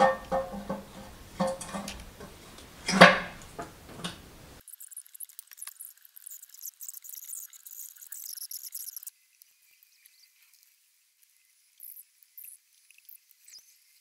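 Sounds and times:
metal knocks and clinks: 0.0s - 4.4s.

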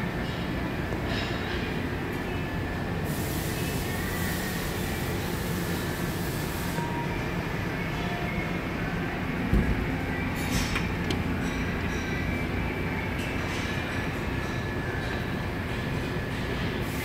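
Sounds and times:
industrial machinery running: 0.0s - 17.0s
hiss: 3.0s - 6.8s.

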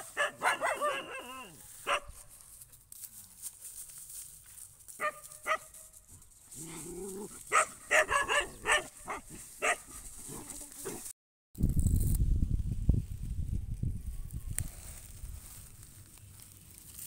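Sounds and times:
puppy barking: 0.0s - 2.2s, 5.0s - 5.7s, 7.5s - 10.0s.

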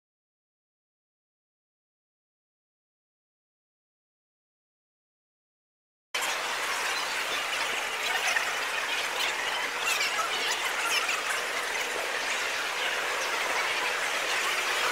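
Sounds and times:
sped-up crowd babble: 6.2s - 14.9s.

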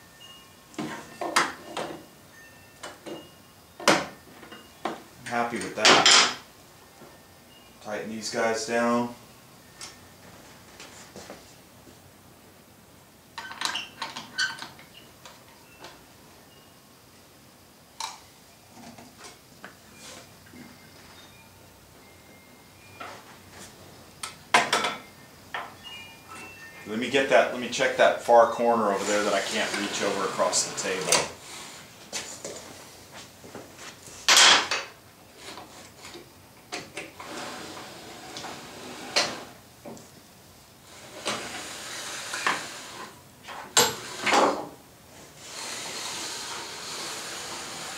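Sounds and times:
scraping noise: 28.7s - 31.9s.

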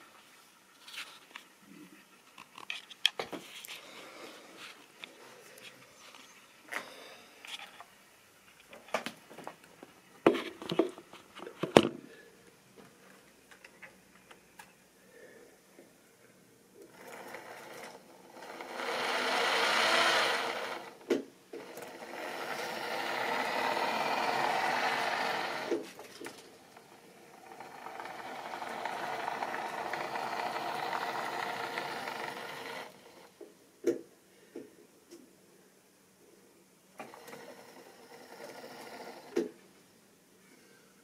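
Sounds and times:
model train motor whirring: 16.8s - 33.3s, 37.0s - 39.5s.

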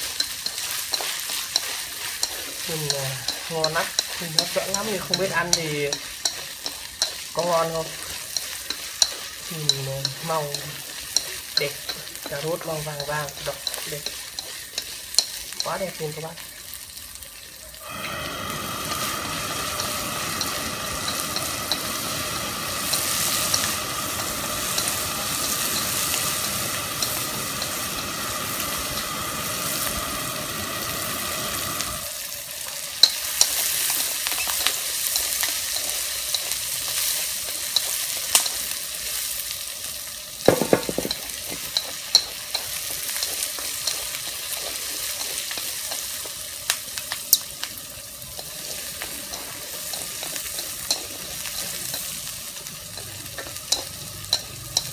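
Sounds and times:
vegetables sizzling in a wok: 0.0s - 54.9s
chopsticks clicking on wok: 0.1s - 15.9s, 19.7s - 30.0s, 40.5s - 47.7s, 48.3s - 52.2s, 52.9s - 54.9s
gas burner hum: 17.8s - 32.1s, 40.4s - 54.9s.

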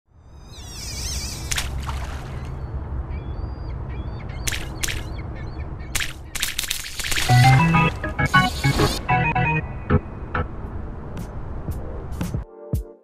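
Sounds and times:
warbling high bird call: 0.4s - 2.5s
steady low rumble: 9.0s - 12.4s.

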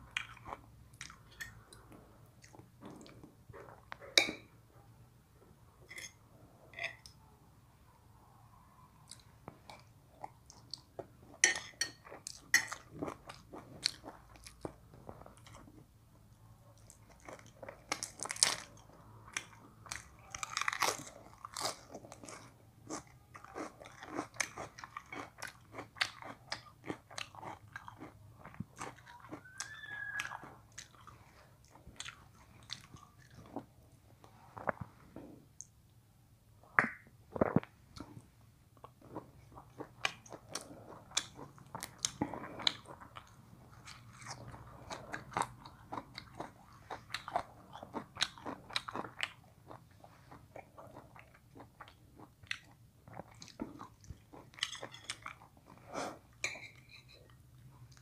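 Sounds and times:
chewing crunchy lettuce: 12.1s - 15.8s, 16.8s - 33.7s, 38.8s - 56.0s.

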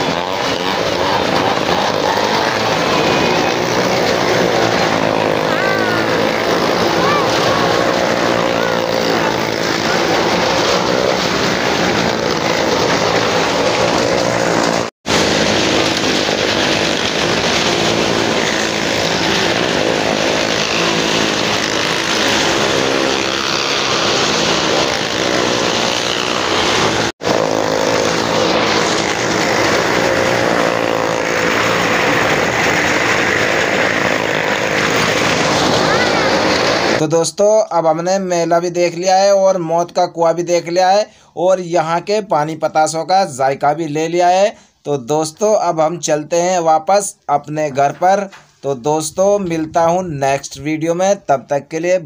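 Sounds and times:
car and motorcycle engines droning: 0.0s - 37.0s.

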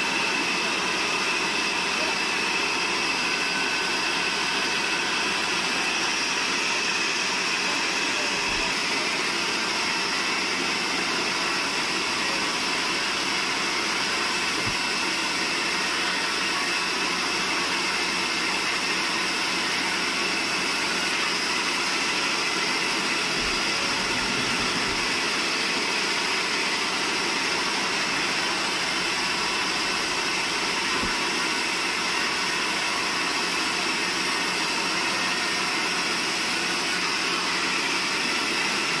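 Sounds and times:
band saw cutting log: 0.0s - 39.0s.

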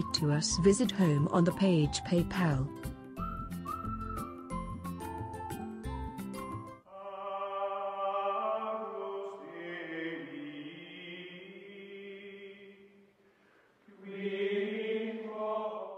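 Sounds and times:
choir holding long chords: 6.9s - 12.8s, 13.9s - 15.9s.

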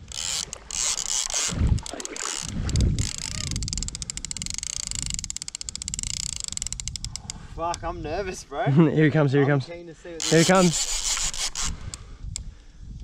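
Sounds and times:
fishing reel clicking: 0.0s - 7.8s, 10.2s - 12.5s.

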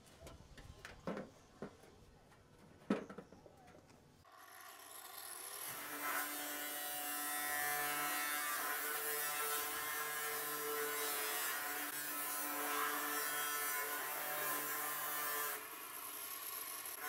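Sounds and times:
angle grinder cutting metal sheet: 4.3s - 17.0s.

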